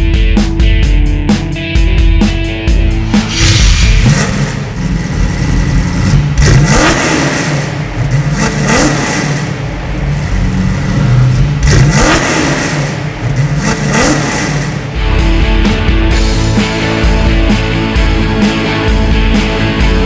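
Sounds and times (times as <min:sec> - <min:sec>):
car engine revving: 0:02.7 - 0:18.4.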